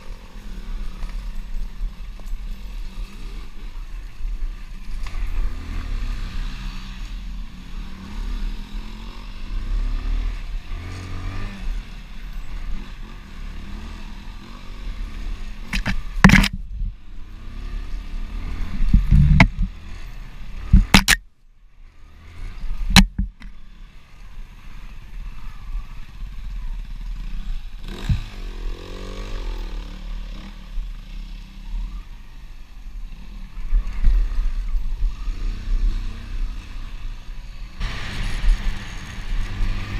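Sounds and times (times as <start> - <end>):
dirt bike engine revving: 0.0 - 21.2, 21.8 - 32.4, 33.0 - 39.9
sharp knocks from bumps: 18.9 - 19.7, 20.7 - 21.2, 22.9 - 23.5.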